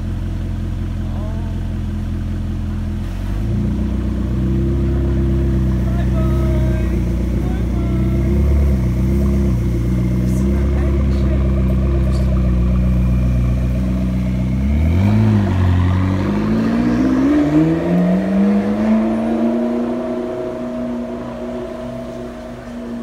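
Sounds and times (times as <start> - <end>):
car engine idling and revving: 0.0 - 23.0.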